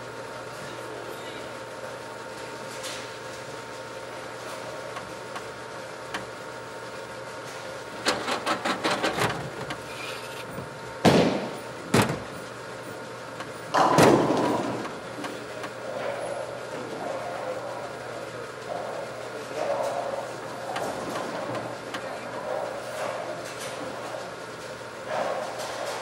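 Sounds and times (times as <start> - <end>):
bowling pins crashing: 13.7 - 14.8.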